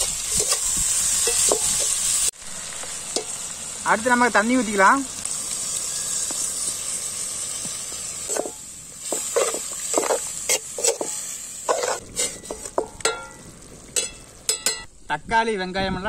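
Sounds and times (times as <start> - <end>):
metal ladle scraping pan: 0.0 - 2.0, 8.3 - 14.9
water sizzling in hot pan: 0.0 - 15.1.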